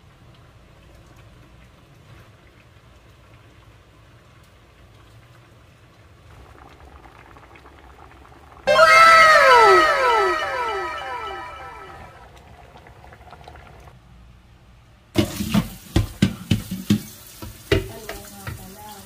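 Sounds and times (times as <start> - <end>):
cascade of chime-like tones: 8.7 - 12.2.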